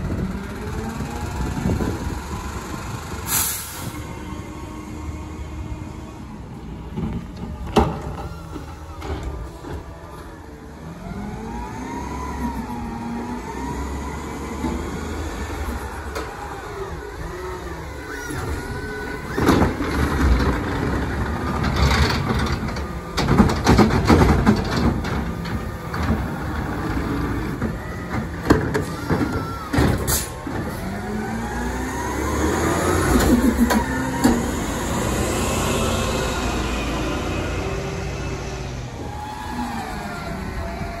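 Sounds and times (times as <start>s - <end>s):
garbage truck engine: 0.0s - 41.0s
bangs of trash cart emptying: 19.3s - 31.0s.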